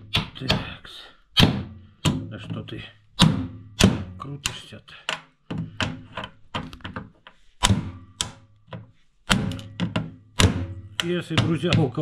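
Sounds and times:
socket wrench knocking on metal: 7.6 - 12.0.

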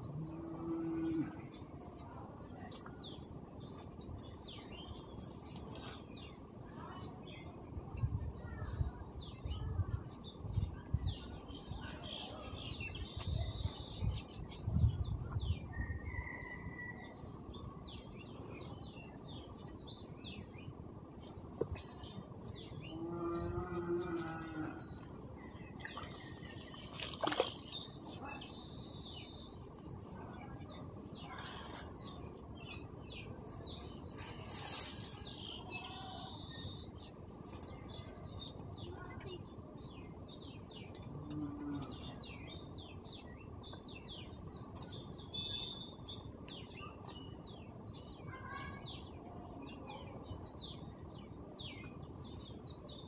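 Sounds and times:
small birds chirping: 0.0 - 53.0.

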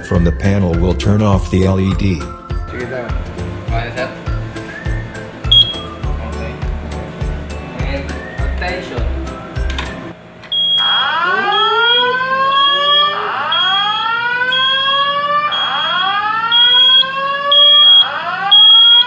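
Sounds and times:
fire alarm whoop tone: 4.7 - 6.0, 10.5 - 19.0
high pulsing beep: 4.7 - 6.0, 10.5 - 13.8, 14.6 - 19.0.

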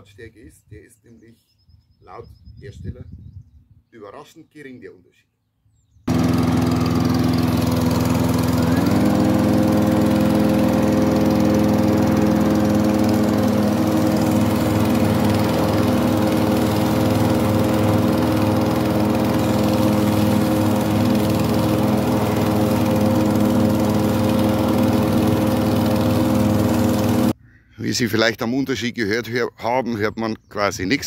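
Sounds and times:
lawn mower running: 6.1 - 27.4.

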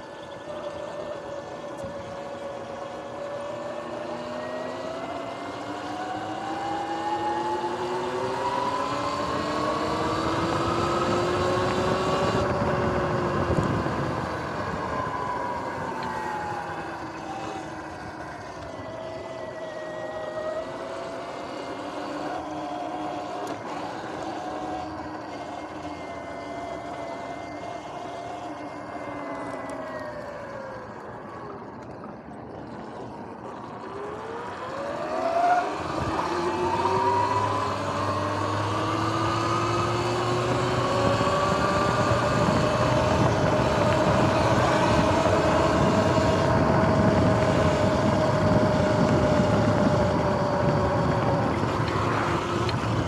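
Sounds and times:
electric motor whining: 0.0 - 53.0
wind rush: 8.5 - 18.9, 35.7 - 53.0.

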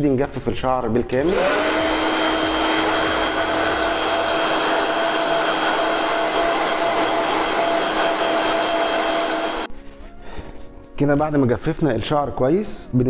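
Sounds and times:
hair dryer running: 1.2 - 9.7.

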